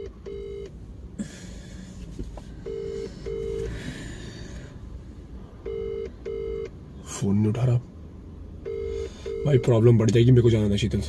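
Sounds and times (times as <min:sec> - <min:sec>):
phone ringback beeps: 0:00.0 - 0:00.7, 0:02.6 - 0:03.8, 0:05.7 - 0:06.7, 0:08.6 - 0:09.8.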